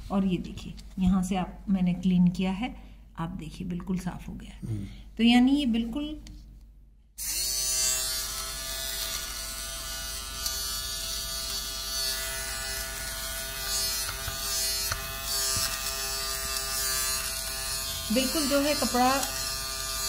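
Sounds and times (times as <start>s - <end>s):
lint remover motor humming: 7.2s - 20.0s.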